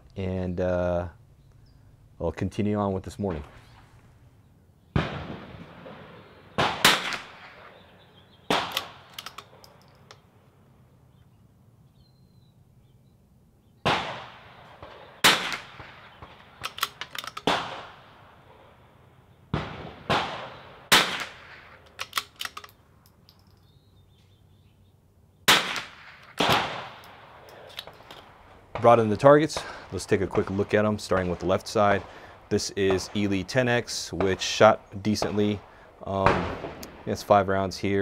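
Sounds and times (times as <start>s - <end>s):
rifle shots with echo: 4.9s - 10.3s, 13.8s - 22.8s, 25.5s - 38.0s
rifle bolt clicks: 8.6s - 10.2s, 16.6s - 17.6s, 21.2s - 23.7s, 26.2s - 28.3s.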